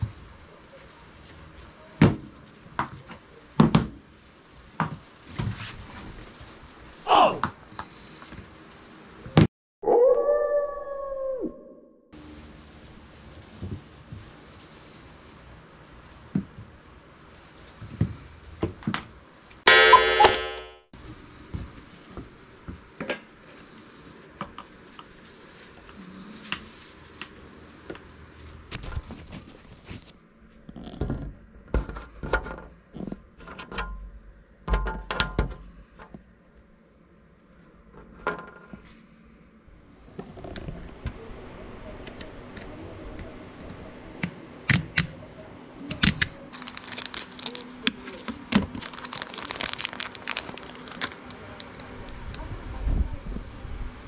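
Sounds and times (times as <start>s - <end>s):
bright metallic ringing tone: 19.7s - 20.8s.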